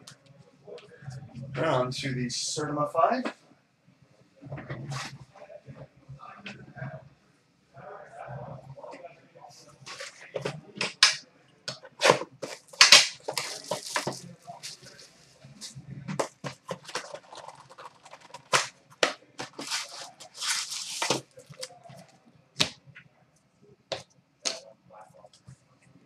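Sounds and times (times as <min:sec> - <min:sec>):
wrapping ripping and crinkling: 0:12.0 - 0:15.7, 0:16.3 - 0:22.0.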